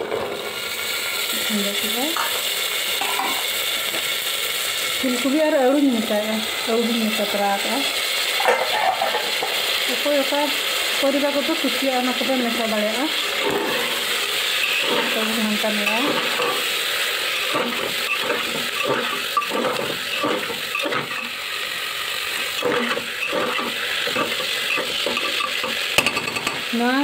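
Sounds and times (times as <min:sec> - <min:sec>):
vegetables sizzling in pot: 0:00.0 - 0:27.0
metal ladle scraping and knocking pot: 0:17.5 - 0:21.3, 0:22.6 - 0:26.7.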